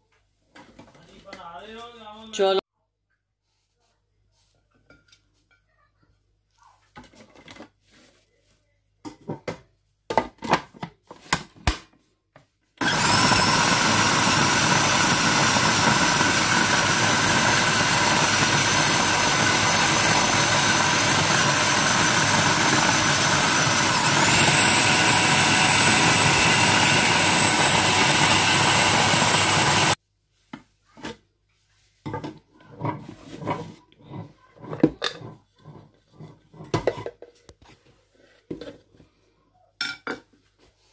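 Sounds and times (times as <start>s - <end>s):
food processor motor whine: 12.8s - 30.0s.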